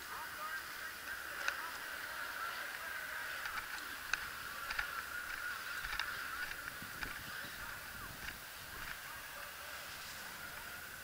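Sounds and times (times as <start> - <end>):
distant motocross bikes racing: 0.0 - 11.0
sharp clicks: 2.6 - 7.2.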